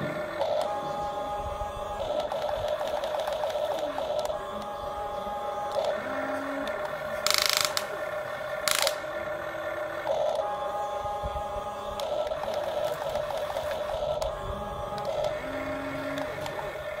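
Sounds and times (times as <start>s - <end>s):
electric gear motors whining: 0.0s - 17.0s
rapid gear clicking: 2.0s - 9.2s.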